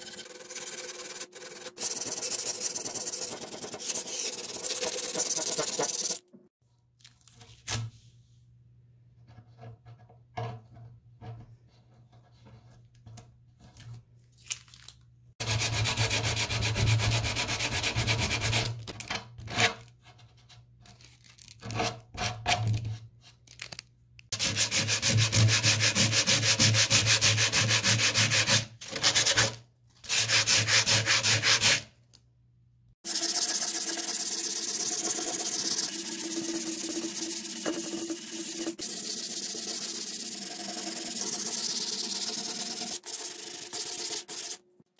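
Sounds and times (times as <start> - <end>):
sanding sponge rubbing: 0.5 - 6.2, 30.1 - 31.8
sandpaper rubbing on wood: 0.6 - 6.2, 30.1 - 31.8.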